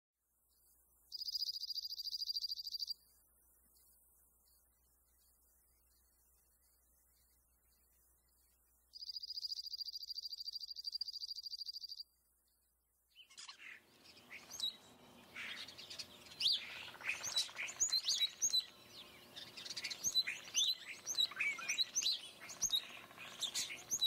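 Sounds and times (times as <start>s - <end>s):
songbirds chirping and singing: 13.1s - 24.0s.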